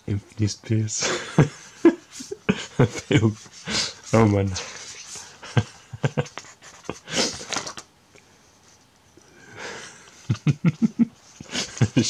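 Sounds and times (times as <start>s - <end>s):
paper page rustling: 2.1s - 5.4s, 6.2s - 7.9s.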